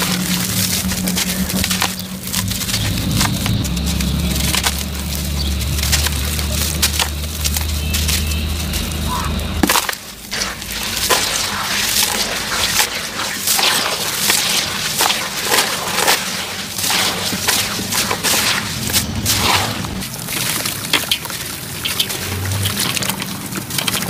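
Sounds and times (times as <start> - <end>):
gritty cement chunks crunching: 0.0 - 24.0.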